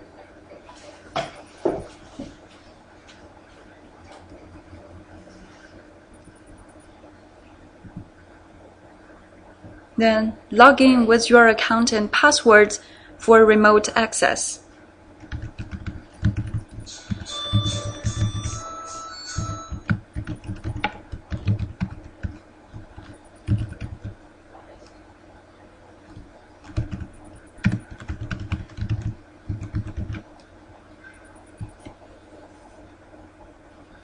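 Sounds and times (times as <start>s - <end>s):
typing on computer keyboard: 15.2s - 18.6s, 19.3s - 24.2s, 26.1s - 30.2s.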